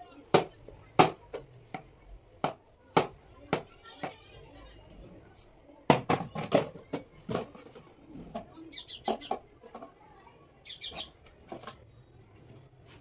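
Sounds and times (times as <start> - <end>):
high falling chirp-like calls: 8.7 - 9.4, 10.6 - 11.2.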